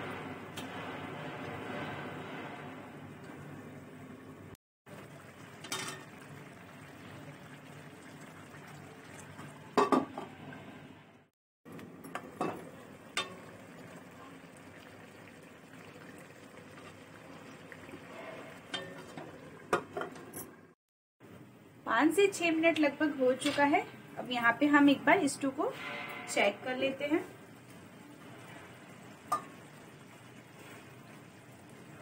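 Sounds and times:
metal pot lid clinking: 0:05.6 - 0:06.1.

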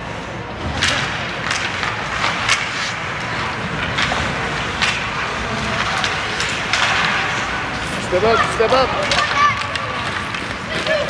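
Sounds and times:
skate blades scraping ice: 0:00.0 - 0:11.0.

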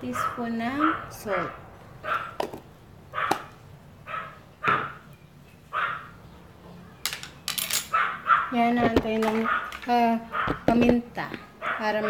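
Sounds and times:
dog barking: 0:00.1 - 0:02.4, 0:03.1 - 0:05.0, 0:05.7 - 0:06.1, 0:07.9 - 0:08.6, 0:09.4 - 0:10.7, 0:11.5 - 0:12.0.

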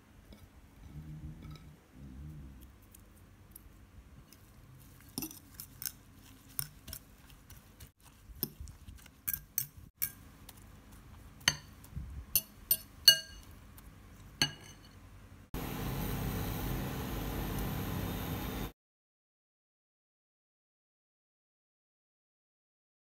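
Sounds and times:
fork clinking against ceramic bowl: 0:11.4 - 0:11.8, 0:12.4 - 0:13.6, 0:14.4 - 0:15.0.

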